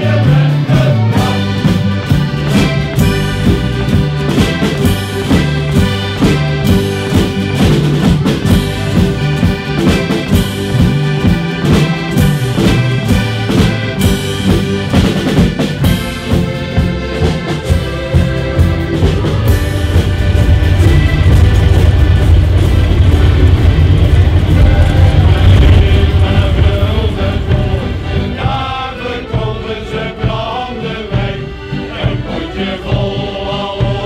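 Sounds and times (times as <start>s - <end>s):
acoustic guitar: 0.0s - 30.1s
accordion chords: 0.0s - 34.0s
drum and cymbals beat: 0.0s - 34.0s.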